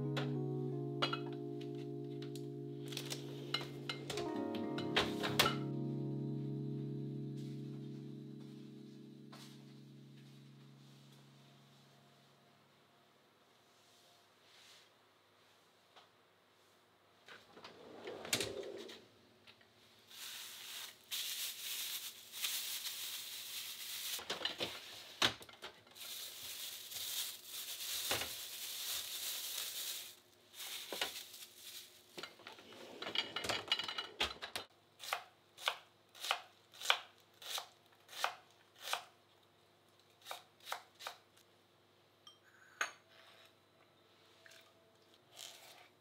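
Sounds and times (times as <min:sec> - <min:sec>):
plastic bags crinkling: 0:20.2 - 0:24.2, 0:25.9 - 0:32.2.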